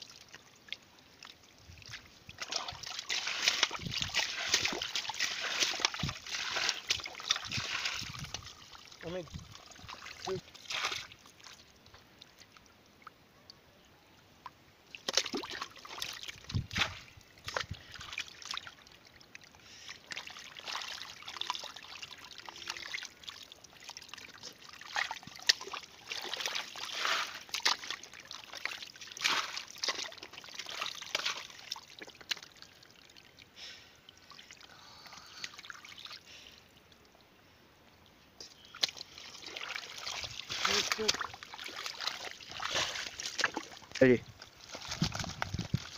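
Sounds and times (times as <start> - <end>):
muddy water trickling: 0.0 - 45.9
wet splashes and slaps: 1.8 - 8.9, 9.7 - 11.6, 14.9 - 18.8, 24.7 - 32.7, 38.7 - 44.0, 44.6 - 45.9.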